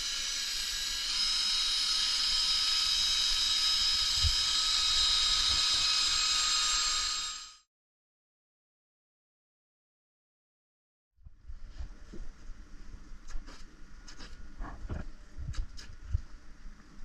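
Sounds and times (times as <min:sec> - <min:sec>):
cordless drill motor whine: 0:00.0 - 0:07.6.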